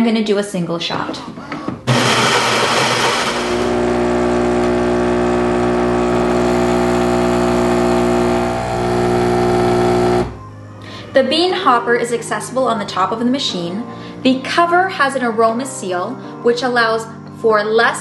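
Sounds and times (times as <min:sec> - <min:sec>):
espresso machine pump humming: 0:01.9 - 0:10.4.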